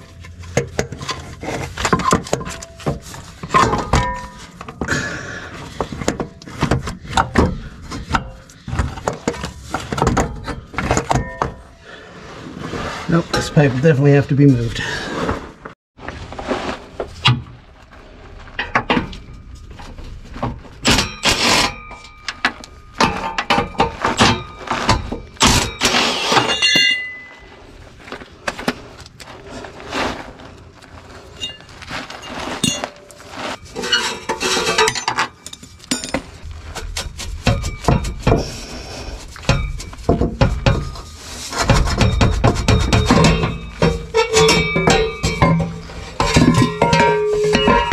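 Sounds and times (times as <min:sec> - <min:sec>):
metal tools clanking: 0:13.1 - 0:14.6, 0:18.6 - 0:27.7, 0:31.4 - 0:38.7, 0:39.3 - 0:47.9
metallic ring: 0:20.8 - 0:27.7, 0:39.4 - 0:47.9.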